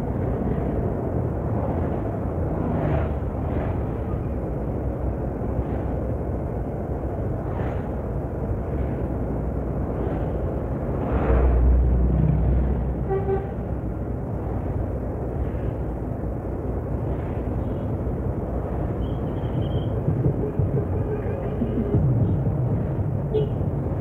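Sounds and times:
road traffic rumble: 0.0s - 24.0s.

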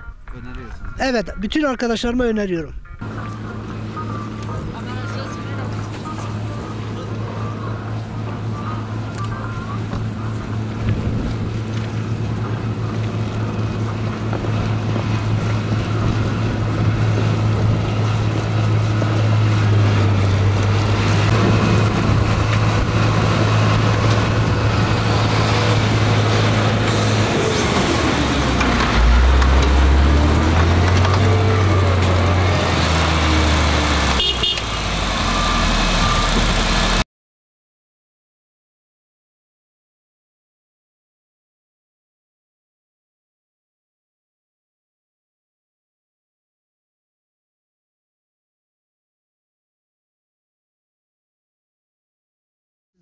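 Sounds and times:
heavy diesel engines droning: 2.8s - 37.0s.

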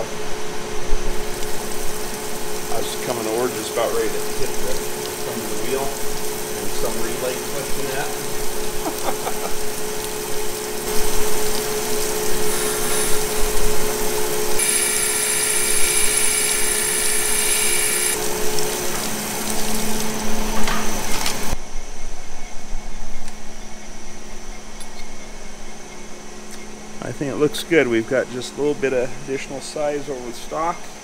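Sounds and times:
grinder motor humming: 1.1s - 21.6s
grinding wheel on metal: 14.6s - 18.2s.

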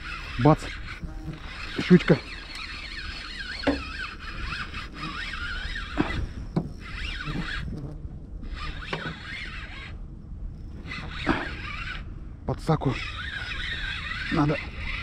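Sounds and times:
fishing reel winding whine: 0.0s - 15.0s
low rumble: 9.8s - 15.0s.

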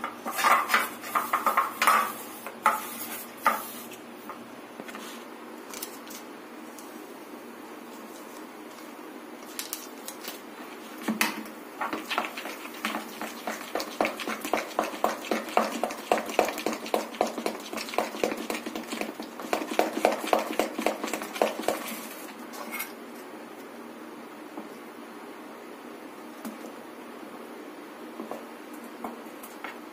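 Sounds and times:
spoon stirring batter in bowl: 0.0s - 3.8s, 11.8s - 22.7s.

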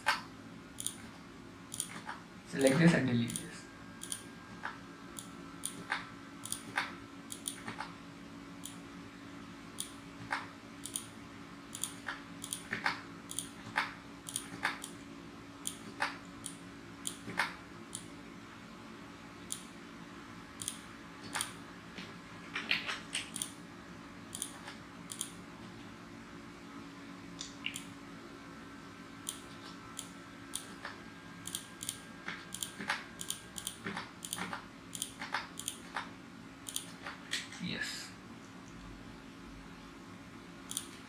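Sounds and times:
computer mouse clicks: 0.0s - 1.1s, 1.7s - 8.0s, 8.6s - 8.8s, 9.8s - 11.1s, 11.7s - 15.0s, 15.6s - 18.1s, 19.4s - 19.7s, 20.6s - 23.6s, 24.3s - 25.4s, 27.4s - 27.9s, 29.2s - 37.4s, 40.7s - 41.0s
faint steady hum: 0.0s - 41.0s
keyboard key presses: 29.3s - 36.1s.

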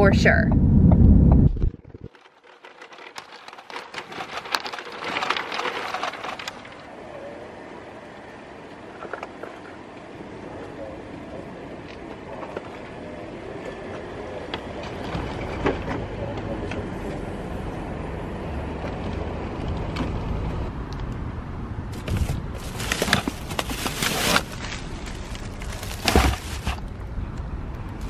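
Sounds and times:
plastic bags rustling: 2.0s - 6.9s, 21.9s - 27.0s
shopping cart wheels rattling: 2.1s - 6.9s, 21.9s - 27.0s.

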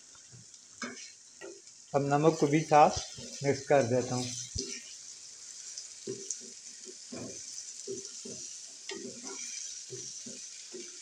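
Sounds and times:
oil sizzling: 0.0s - 11.0s
spatula scraping wok: 2.3s - 11.0s.

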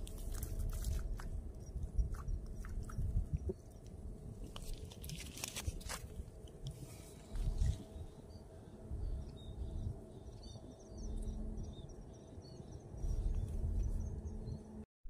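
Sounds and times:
wind gusts on microphone: 0.0s - 4.8s, 5.7s - 8.2s, 12.9s - 14.7s
faint steady hum: 0.0s - 14.9s
small birds chirping: 6.8s - 14.7s.

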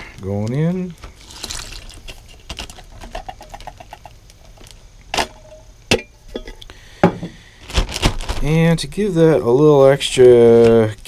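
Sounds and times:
food plopping into plastic bag: 0.6s - 5.4s.

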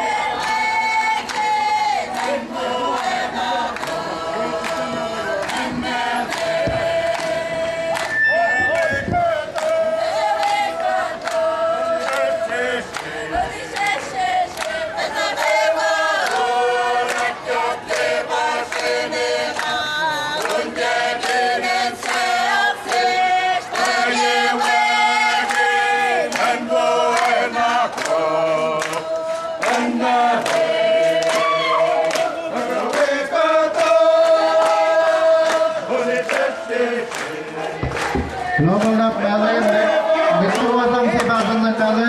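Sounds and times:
crowd singing together: 0.0s - 42.0s.

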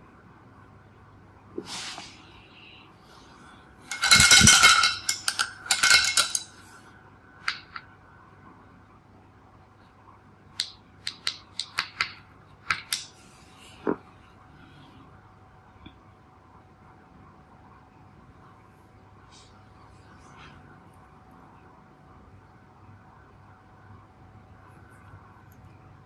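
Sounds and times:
painting supplies rustling and clattering: 3.8s - 6.8s
light sharp clicks and taps: 10.6s - 13.2s.

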